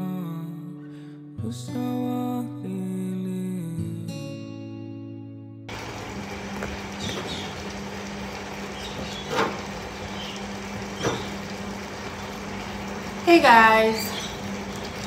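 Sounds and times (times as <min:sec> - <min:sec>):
washing machine humming: 0:05.7 - 0:15.0.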